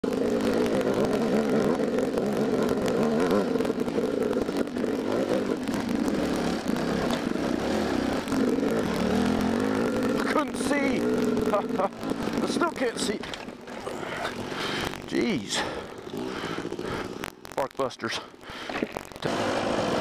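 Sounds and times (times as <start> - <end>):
dirt bike engine revving: 0.0 - 17.5, 18.2 - 20.0
bike knocks and rattles: 0.2 - 15.1.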